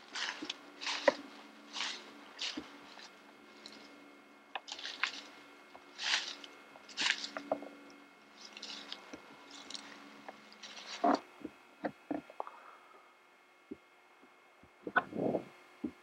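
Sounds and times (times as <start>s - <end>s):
sharp snaps of branches: 0.0s - 3.9s
dry grass rustling and crunching: 0.0s - 11.5s.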